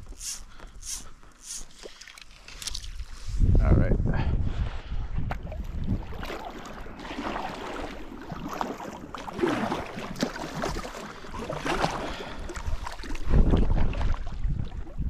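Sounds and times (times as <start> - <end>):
paddle splashing in water: 5.4 - 15.0.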